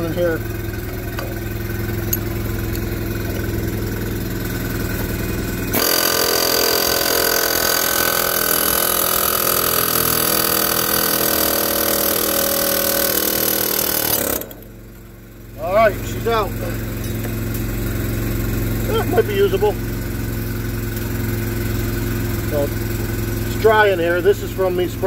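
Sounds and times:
low mechanical hum: 0:00.0 - 0:25.0
pneumatic air hammer rattling: 0:00.6 - 0:15.2, 0:16.8 - 0:18.9.

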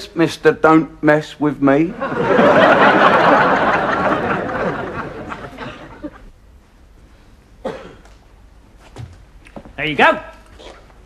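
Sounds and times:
audience laughing: 0:01.9 - 0:06.3.

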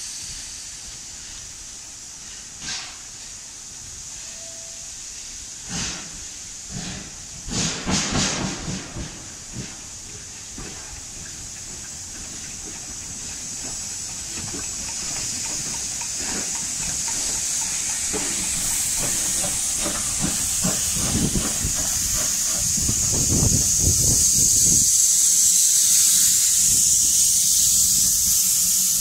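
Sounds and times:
steam locomotive hissing steam: 0:00.0 - 0:29.0
locomotive knocking beats: 0:08.0 - 0:24.2.

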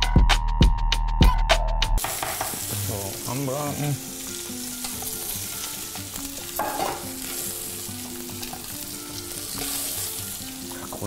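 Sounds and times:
meat sizzling in a frying pan: 0:02.0 - 0:11.0.

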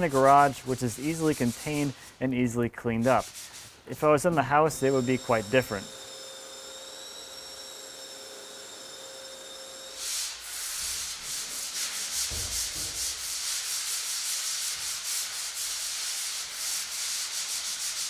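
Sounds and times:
hand sanding drywall: 0:00.0 - 0:06.0, 0:09.6 - 0:18.0.

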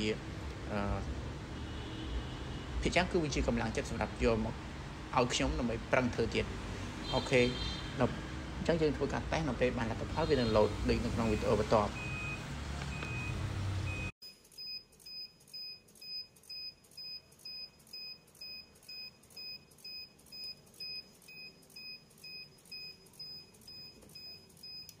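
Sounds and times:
alarm buzzer beeping: 0:11.2 - 0:24.9.

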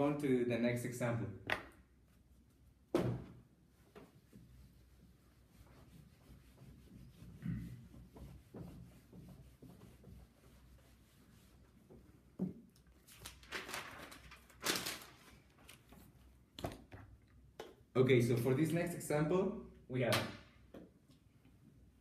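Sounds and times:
eraser rubbing on whiteboard: 0:04.0 - 0:12.0
paper rustling and flapping: 0:12.9 - 0:16.8.

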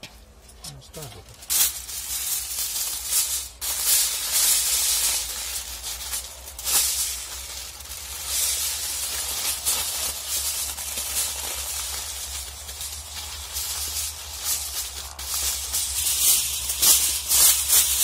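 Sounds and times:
aluminium foil crinkling: 0:00.4 - 0:18.0.

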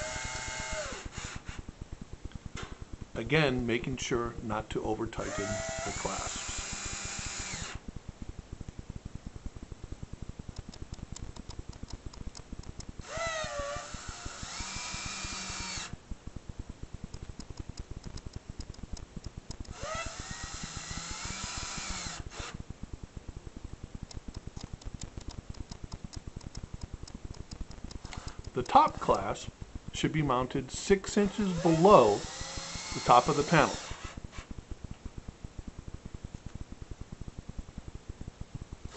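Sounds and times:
cordless drill whining: 0:00.0 - 0:01.6, 0:05.2 - 0:07.8, 0:13.0 - 0:16.0, 0:19.7 - 0:22.6, 0:31.3 - 0:34.2.

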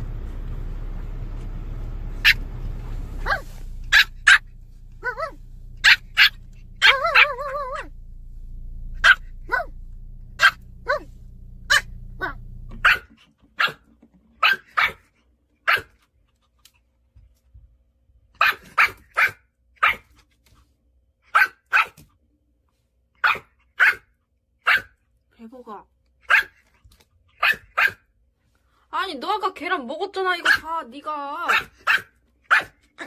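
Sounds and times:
low hum: 0:00.0 - 0:13.1
puppy barking: 0:02.2 - 0:02.6, 0:03.2 - 0:08.0, 0:09.0 - 0:09.8, 0:10.4 - 0:16.0, 0:18.4 - 0:20.2, 0:21.3 - 0:22.0, 0:23.2 - 0:25.0, 0:26.2 - 0:26.7, 0:27.3 - 0:28.1, 0:30.4 - 0:30.8, 0:31.4 - 0:33.0.

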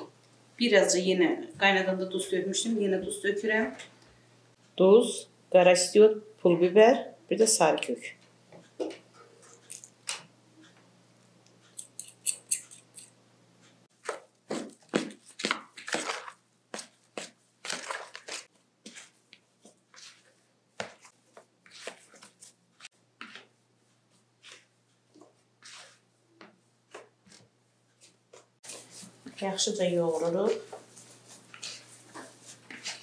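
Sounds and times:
hands kneading mashed potato: 0:13.9 - 0:33.0.

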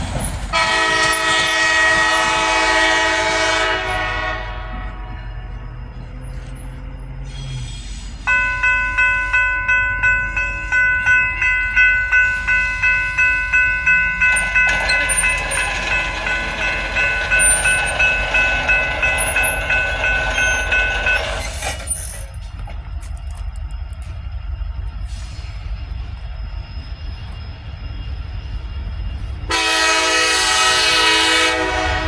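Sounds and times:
train passing: 0:00.0 - 0:32.0
railroad crossing bell ringing: 0:08.2 - 0:32.0.

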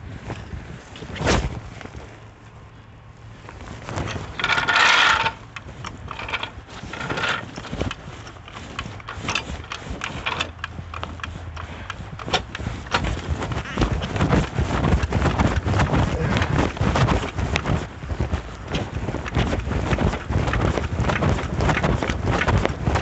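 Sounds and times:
floor jack clicks and knocks: 0:03.9 - 0:23.0
metal scraping on pavement: 0:04.1 - 0:10.6.

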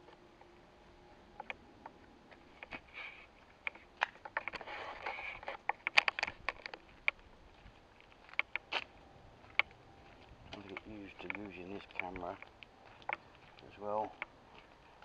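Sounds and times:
rustle: 0:00.0 - 0:15.0
camera rig clicks and scrapes: 0:02.5 - 0:07.2.

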